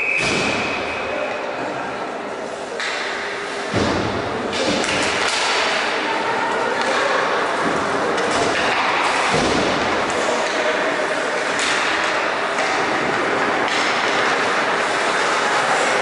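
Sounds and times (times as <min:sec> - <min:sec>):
players' voices: 0:00.0 - 0:16.0
hockey sticks clacking: 0:02.7 - 0:16.0
hard puck thud: 0:07.6 - 0:10.6.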